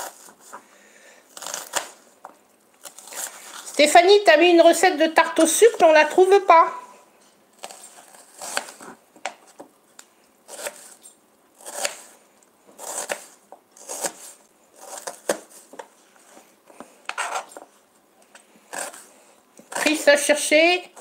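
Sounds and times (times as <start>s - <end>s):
knife slicing onion on board: 7.6s - 9.0s, 10.5s - 11.0s, 11.6s - 12.1s, 12.8s - 15.6s.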